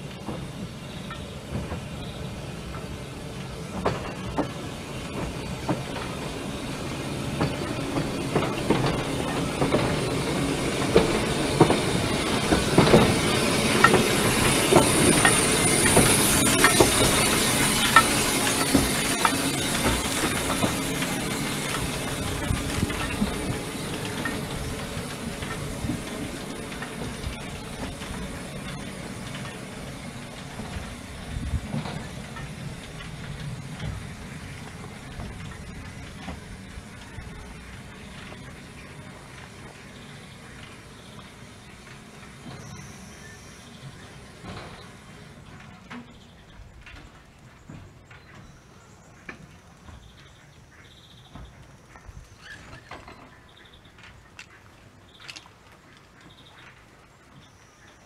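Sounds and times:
steam hiss: 0.0 - 46.7
steam train wheels clicking: 0.0 - 58.0.

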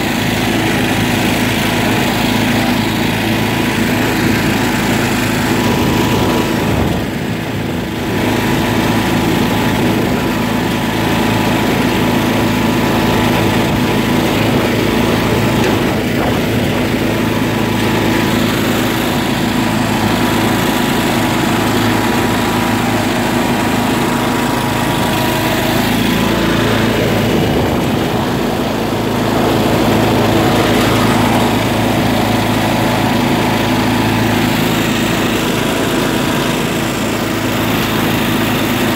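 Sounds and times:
lawn tractor engine running: 0.0 - 38.9.

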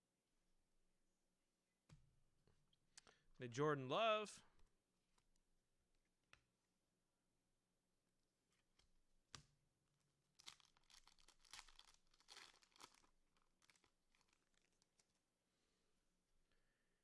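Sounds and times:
wrapper tearing and crinkling: 10.4 - 15.2.

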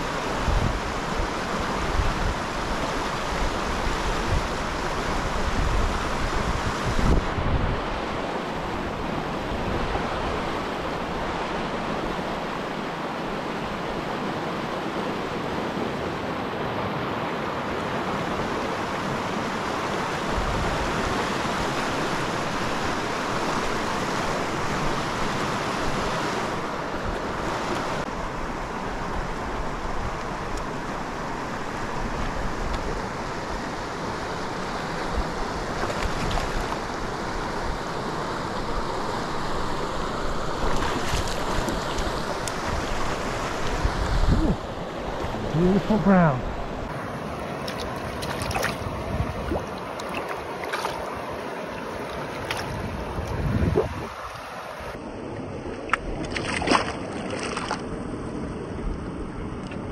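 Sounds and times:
river current rushing: 0.0 - 59.9
wind buffeting microphone: 3.4 - 8.0, 35.0 - 45.7, 48.0 - 51.4, 52.4 - 55.0.

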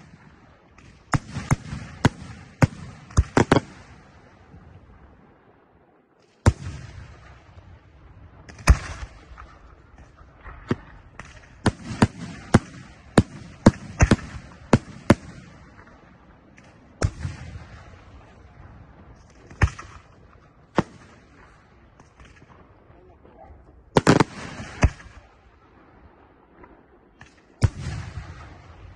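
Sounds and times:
fireworks bursting: 0.0 - 5.0, 6.2 - 28.9.

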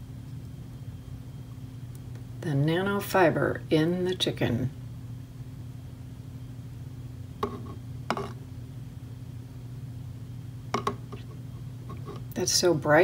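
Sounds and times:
low electrical hum: 0.0 - 13.0
phone tapping and rustling: 7.4 - 8.4, 10.8 - 12.3.

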